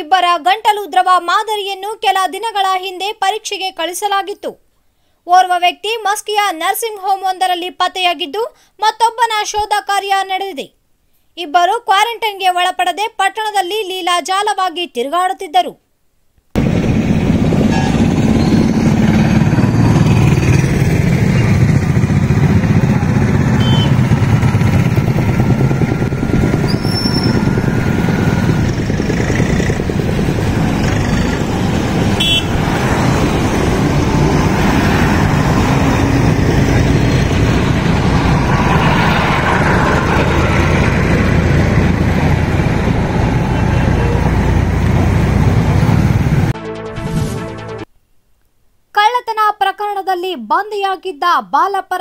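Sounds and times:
motorcycle engines running: 0:16.6 - 0:46.5.

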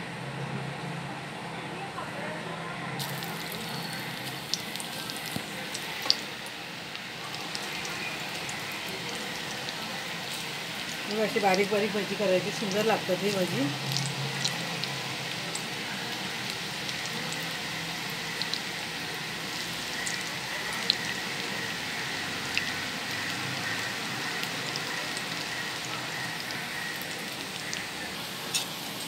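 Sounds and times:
oil popping: 0:03.0 - 0:06.3
oil sizzling: 0:03.0 - 0:29.0.

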